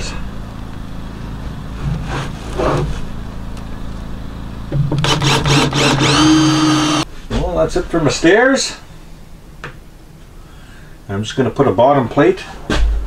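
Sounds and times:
low engine hum: 0.0 - 7.1
power drill driving screws: 5.0 - 7.0.

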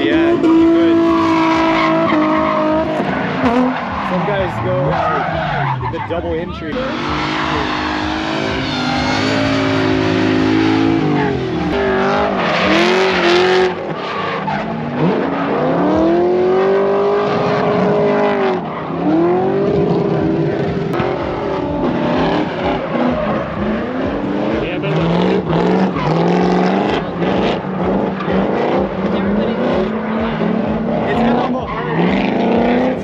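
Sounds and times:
car engines revving: 0.0 - 33.0
tyre squeal: 0.4 - 15.8.

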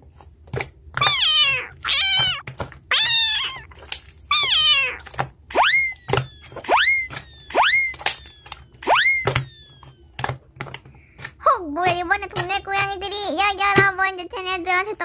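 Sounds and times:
cats meowing: 1.0 - 10.1.

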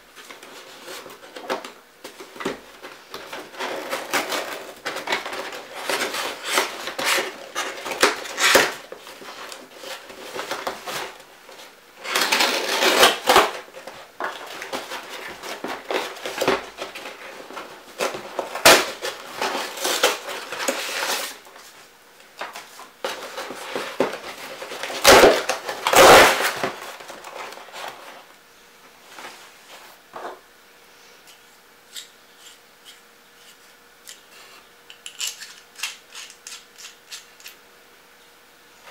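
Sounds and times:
paper rustling and crackling: 0.1 - 28.3
cardboard scraping and tearing: 0.2 - 21.8, 23.0 - 28.3.

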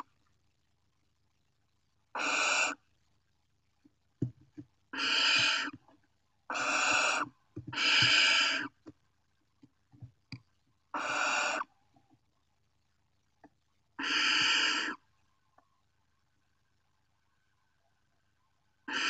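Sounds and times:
owls hissing calls: 2.2 - 2.8, 4.9 - 5.8, 6.5 - 8.8, 10.9 - 11.7, 14.0 - 15.0
birds knocking and scratching: 4.2 - 6.0, 6.6 - 9.0.

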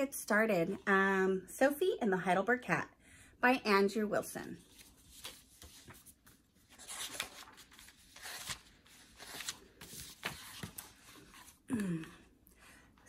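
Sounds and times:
book pages turning: 4.7 - 11.7.

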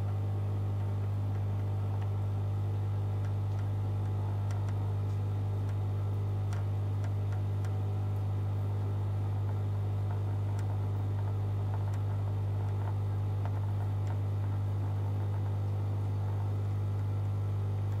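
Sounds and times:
aquarium equipment humming: 0.0 - 18.0
faint ticks: 3.2 - 5.8, 6.5 - 18.0.

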